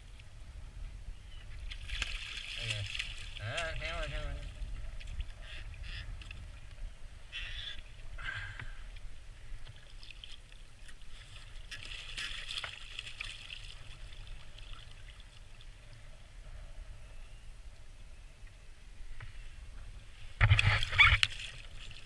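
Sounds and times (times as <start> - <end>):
wind rumble on microphone: 0.0 - 10.0, 13.8 - 22.0
water splashing: 1.6 - 5.6, 9.7 - 15.7, 20.4 - 22.0.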